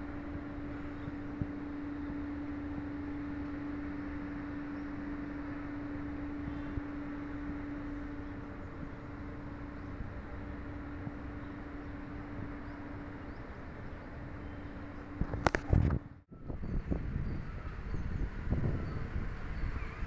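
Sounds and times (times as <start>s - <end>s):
constant low hum: 0.0s - 20.0s
low background rumble: 0.0s - 20.0s.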